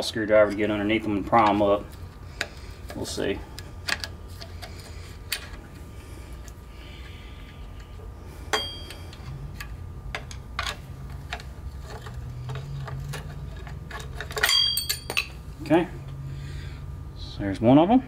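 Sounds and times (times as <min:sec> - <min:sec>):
ringing metal clink: 0:08.5 - 0:09.0, 0:14.4 - 0:15.4.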